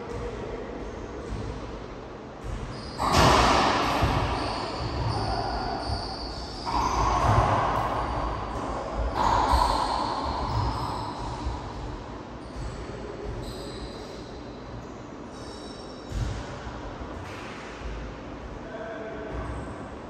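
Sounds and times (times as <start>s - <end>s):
racquetball shots echoing: 0.0s - 14.4s.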